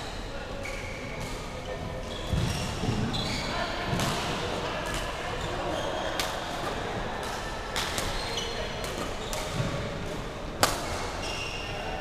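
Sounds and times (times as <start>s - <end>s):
shoes squeaking on court floor: 0.0s - 6.8s, 8.0s - 10.0s, 10.8s - 12.0s
rackets striking shuttlecock: 6.2s - 11.2s.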